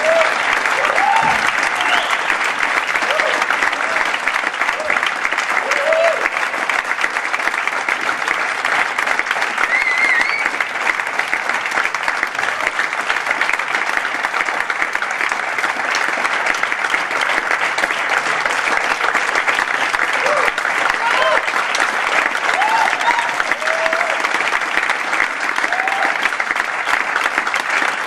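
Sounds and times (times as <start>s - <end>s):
audience applauding: 0.0s - 28.0s.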